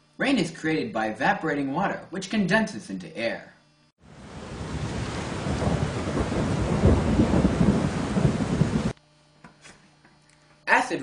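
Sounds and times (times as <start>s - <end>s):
heavy rain pouring: 4.0s - 9.0s
deep rumble: 4.2s - 8.9s.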